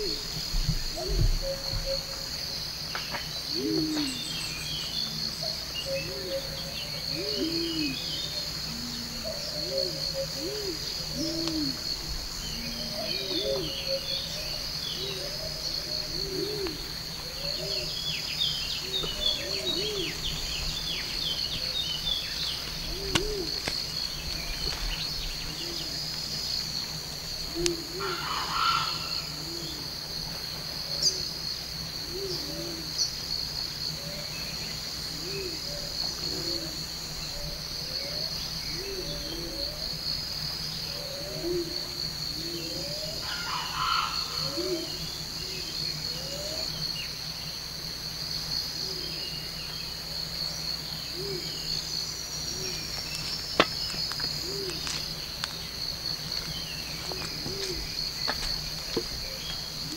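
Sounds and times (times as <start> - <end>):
bird calls: 0.0 - 29.9, 40.7 - 47.1, 50.9 - 59.9
insects chirping: 0.0 - 59.9.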